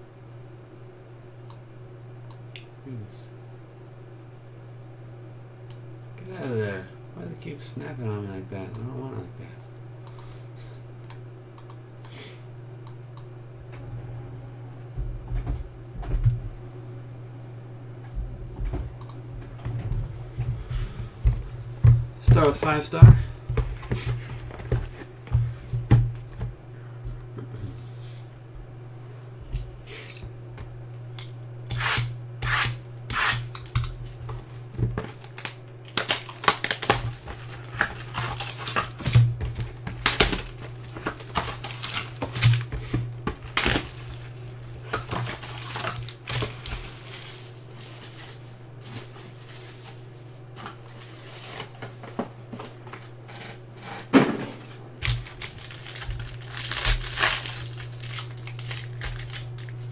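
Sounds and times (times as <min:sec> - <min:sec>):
steady low hum: 0:00.0 - 0:59.9
foil wrapper crinkling: 0:33.3 - 0:52.1, 0:55.0 - 0:59.9.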